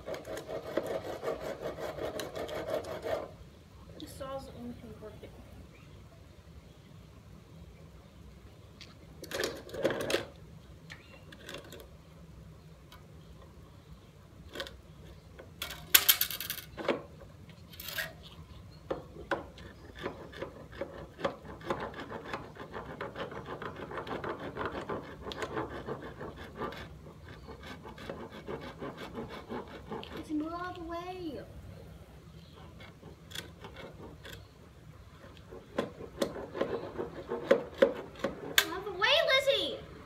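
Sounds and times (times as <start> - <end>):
rapid clicking and rubbing: 0.0 - 3.3, 19.2 - 30.8, 32.5 - 38.9.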